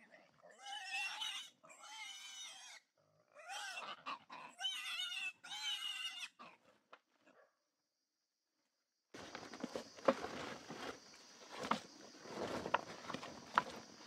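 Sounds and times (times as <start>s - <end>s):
wild boar squealing: 0.4s - 6.6s.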